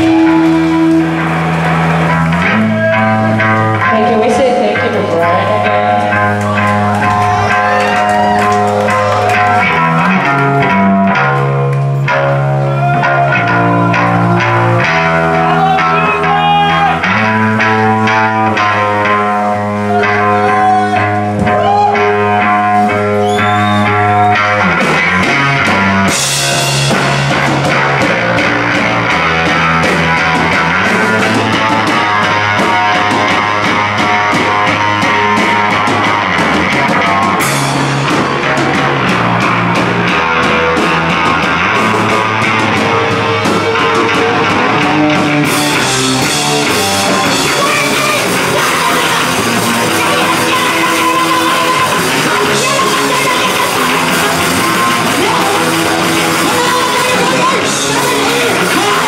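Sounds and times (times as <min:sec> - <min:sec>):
rock band playing: 0:00.0 - 0:59.0
drum kit and cymbals: 0:13.8 - 0:59.0
electric guitars ringing chord: 0:23.8 - 0:59.0.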